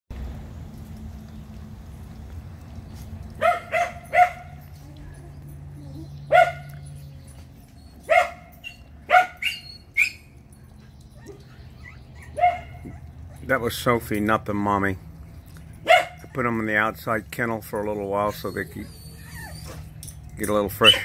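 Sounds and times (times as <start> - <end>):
dog barking: 3.4 - 4.6, 6.3 - 6.8, 8.1 - 10.2, 12.2 - 13.0, 15.8 - 16.3.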